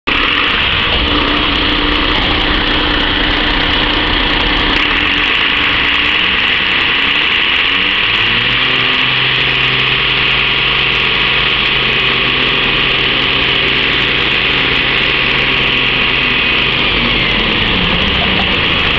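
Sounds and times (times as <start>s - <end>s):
diesel engine running: 0.0s - 18.9s.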